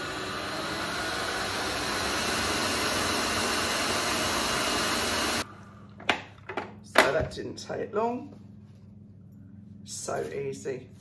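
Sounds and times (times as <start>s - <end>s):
stand mixer motor whirring: 0.0s - 5.4s.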